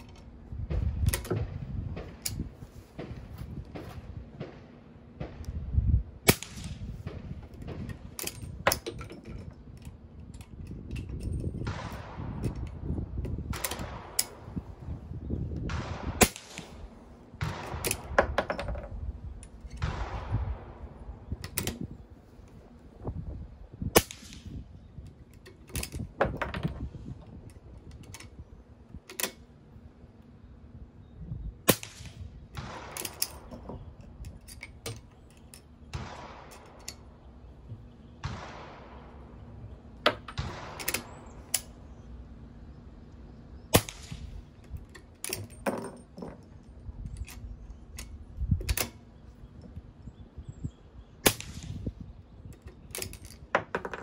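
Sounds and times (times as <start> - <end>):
rifle action metal clicks: 1.0 - 3.1, 6.3 - 14.4, 15.6 - 20.2, 21.4 - 22.6, 24.0 - 29.5, 31.7 - 37.9, 40.0 - 41.8, 43.1 - 49.8, 51.2 - 54.0.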